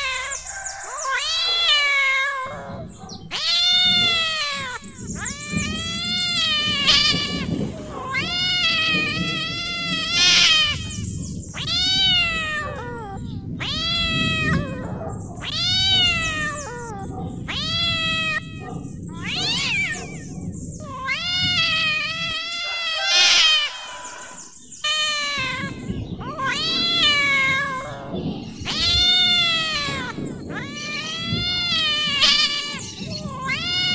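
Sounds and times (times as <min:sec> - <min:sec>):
cat meowing: 0:00.0 - 0:33.9
low background rumble: 0:00.0 - 0:33.9.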